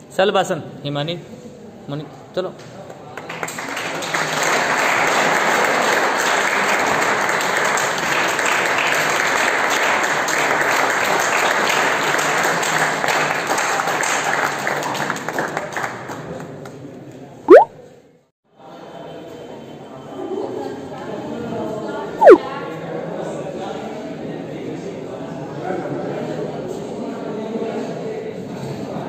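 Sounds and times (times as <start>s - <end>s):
audience clapping: 3.2s - 16.2s.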